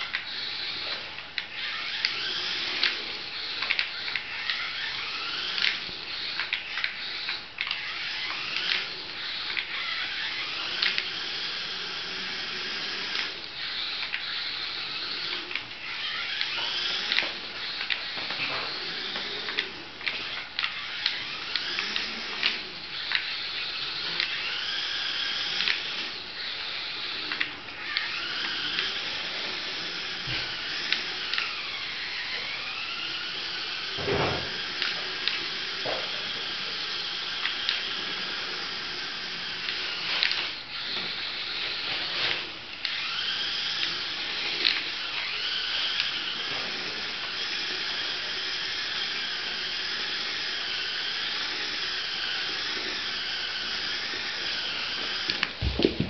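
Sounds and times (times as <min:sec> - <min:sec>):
toy car electric motor whining: 0:00.0 - 0:56.0
loud thump: 0:55.6 - 0:56.0.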